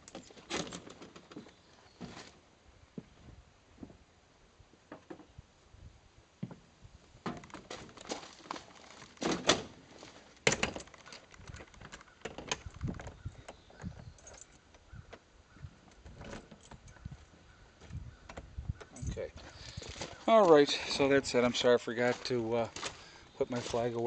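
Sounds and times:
small clicks and knocks: 10.3s - 15.2s.

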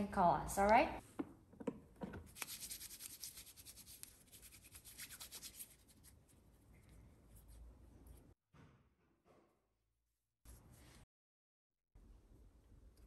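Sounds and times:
hands rubbing together: 2.3s - 6.3s.

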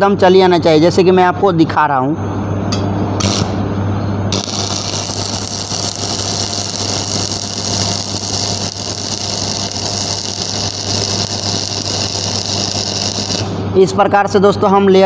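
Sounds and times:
constant low hum: 0.0s - 15.0s
welding arc crackling and hissing: 3.2s - 3.6s, 4.3s - 13.6s.

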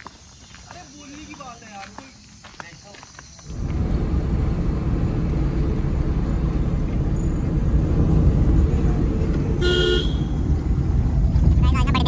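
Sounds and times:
car road and engine rumble: 3.4s - 12.0s.

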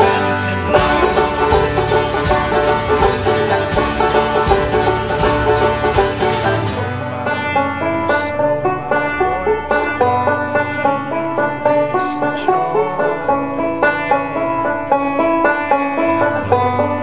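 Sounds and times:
banjo strummed and picked: 0.0s - 17.0s.

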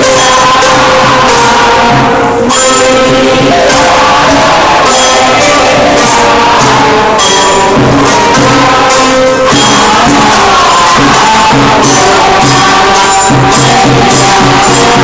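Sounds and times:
group chanting: 0.0s - 15.0s
sharp percussion strikes: 0.0s - 15.0s
sustained pitched tones: 0.0s - 15.0s.

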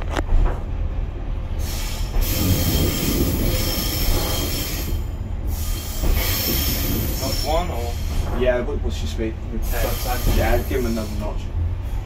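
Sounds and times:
moving train rumble: 0.0s - 12.0s
train wheels squealing on rails: 1.5s - 12.0s.

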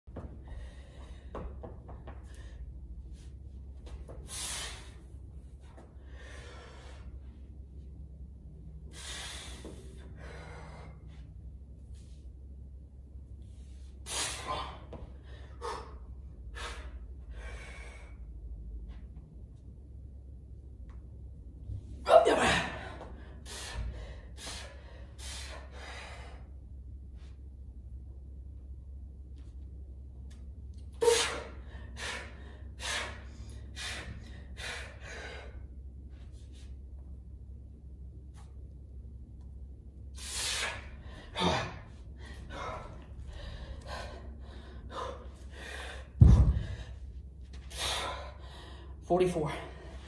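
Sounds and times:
steady low hum: 0.0s - 50.0s
man breathing heavily: 0.2s - 7.7s, 8.7s - 12.1s, 13.5s - 18.8s, 22.4s - 27.4s, 31.0s - 36.8s, 40.1s - 50.0s.

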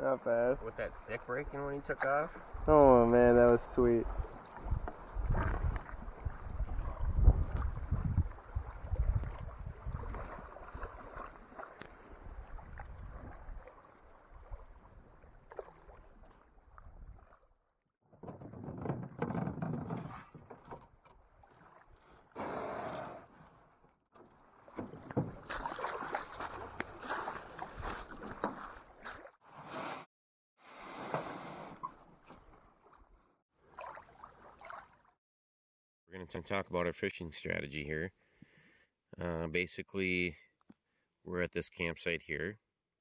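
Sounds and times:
water splashing around canoe: 0.0s - 35.2s
paddle strokes in water: 4.0s - 17.5s, 18.2s - 35.1s.

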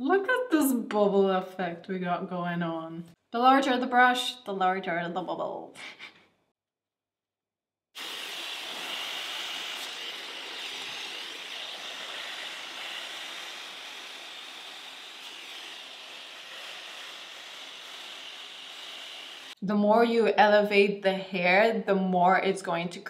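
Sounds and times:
hair dryer blowing: 8.0s - 19.6s.

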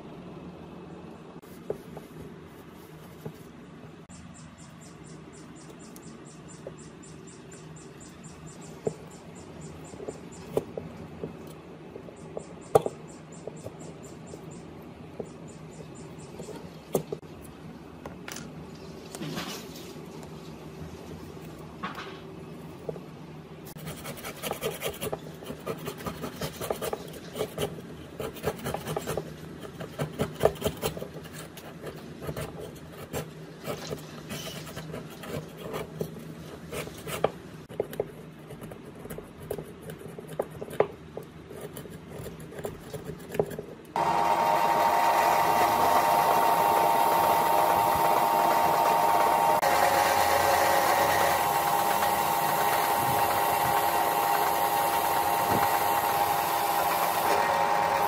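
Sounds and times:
power drill grinding metal: 44.0s - 58.0s.

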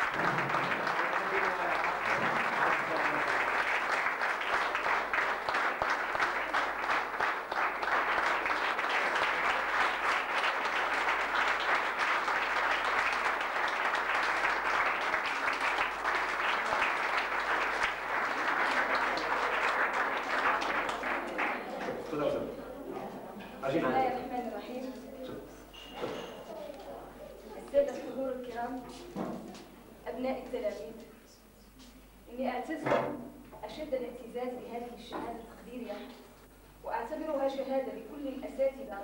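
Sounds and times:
audience applause: 0.0s - 22.5s.

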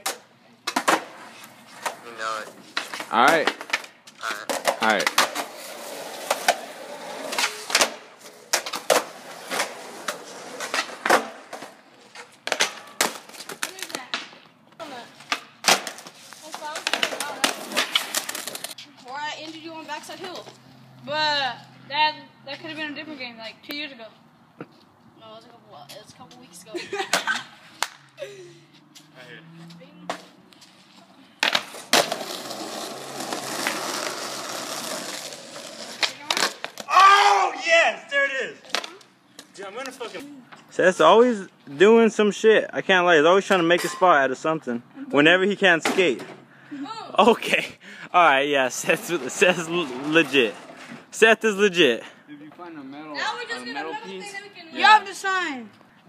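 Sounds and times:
skateboards clacking on concrete: 0.0s - 20.6s, 30.0s - 37.2s, 38.6s - 40.7s.

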